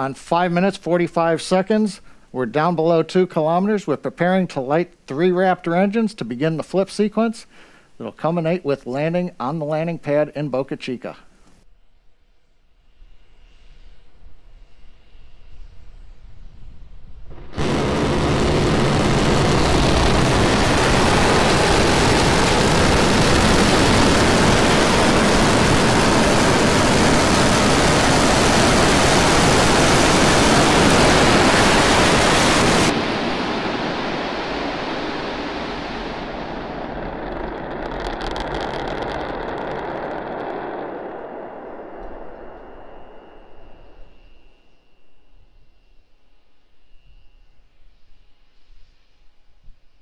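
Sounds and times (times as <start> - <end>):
low rumble: 15.9 - 45.2
rocket engines firing: 17.2 - 44.5
brief crackle: 35.6 - 44.1
faint steady tone: 39.9 - 50.0.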